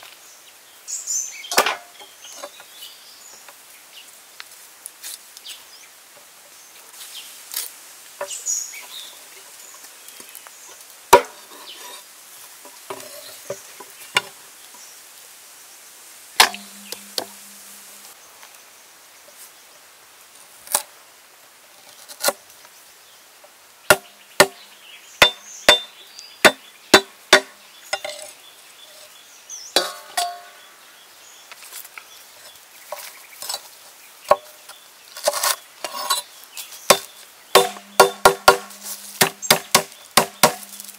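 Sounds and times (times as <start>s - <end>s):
cleaver chopping on wooden block: 16.4s - 17.6s, 23.9s - 24.6s, 25.2s - 28.1s, 36.9s - 40.8s.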